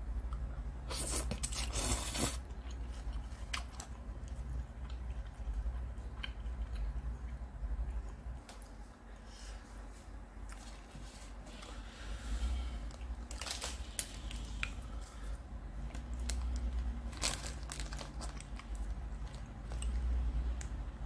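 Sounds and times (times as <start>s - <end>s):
plastic packet crinkling: 13.2s - 14.4s, 16.0s - 20.0s.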